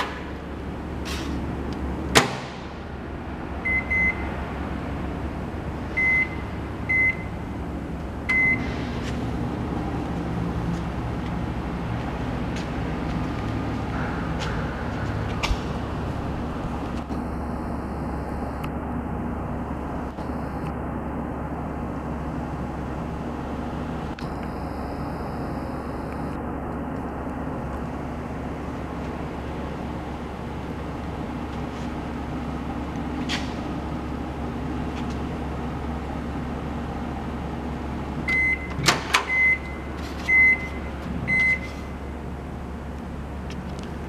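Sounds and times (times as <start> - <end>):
microwave oven humming: 0.0 - 44.0
keypad beeps: 38.3 - 41.7.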